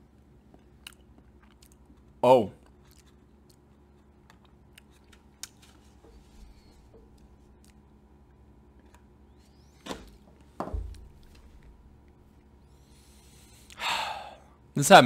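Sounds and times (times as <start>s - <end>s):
short sharp breath: 12.8s - 14.5s.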